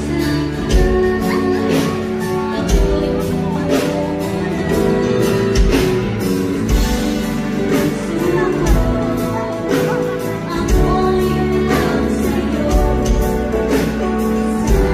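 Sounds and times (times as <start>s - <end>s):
live band playing slow song: 0.0s - 14.9s.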